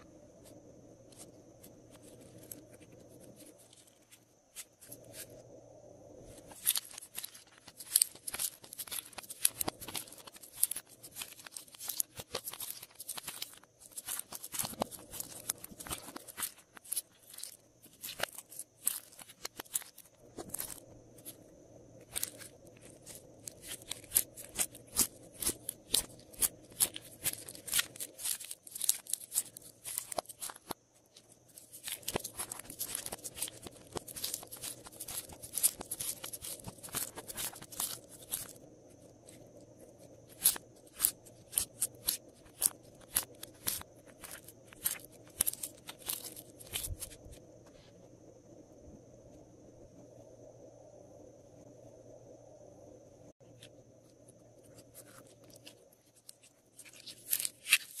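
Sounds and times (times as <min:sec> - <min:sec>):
slime squishing in plastic tray: 0:06.6 - 0:20.8.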